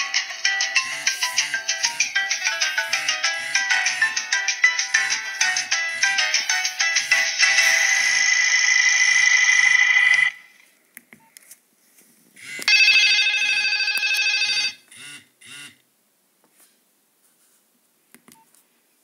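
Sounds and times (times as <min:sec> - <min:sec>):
phone ringtone: 0:00.0 - 0:10.6, 0:12.5 - 0:15.7.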